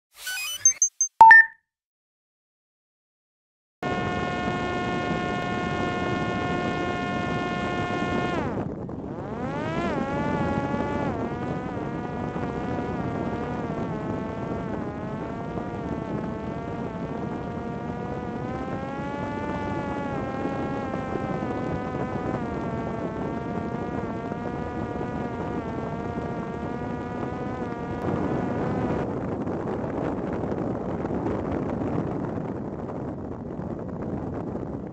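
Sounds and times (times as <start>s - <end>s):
electric propeller motor buzzing: 3.8s - 29.7s.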